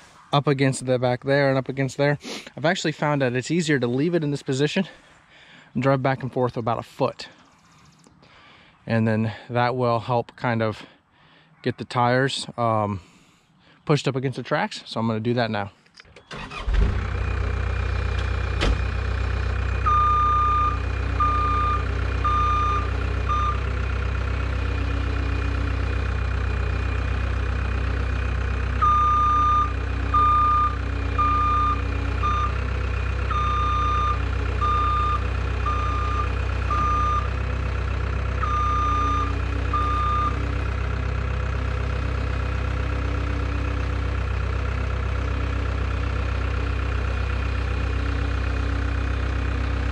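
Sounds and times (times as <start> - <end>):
diesel engine running: 16.3 - 49.9
backup alarm beeping: 19.9 - 23.7, 28.8 - 32.7, 33.3 - 37.3, 38.4 - 40.4.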